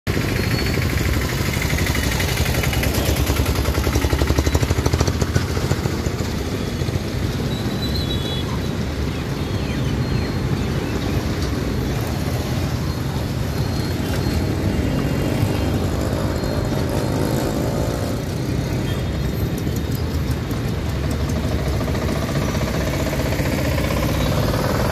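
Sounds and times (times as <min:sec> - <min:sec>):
road traffic driving past: 0:00.1 - 0:24.9
small engine passing close: 0:00.2 - 0:07.1, 0:20.4 - 0:24.9.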